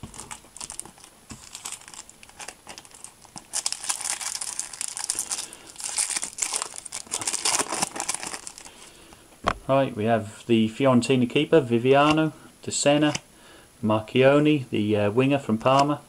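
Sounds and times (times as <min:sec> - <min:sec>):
foil wrapper crinkling: 0:00.0 - 0:09.0.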